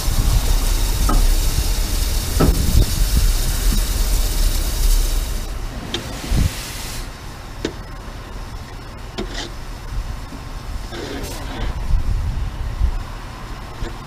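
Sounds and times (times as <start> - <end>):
low rumble: 0.0 - 9.0
steam hissing: 0.0 - 12.3.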